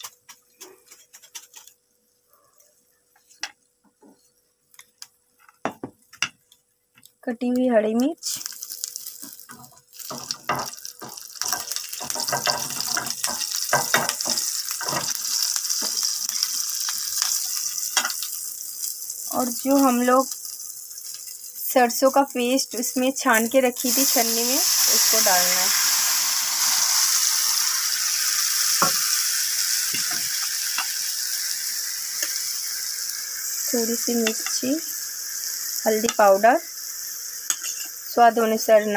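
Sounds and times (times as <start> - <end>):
chillies sizzling in oil: 4.2 - 38.9
oil popping and crackling: 8.2 - 21.7
utensils knocking on pan: 9.2 - 16.0.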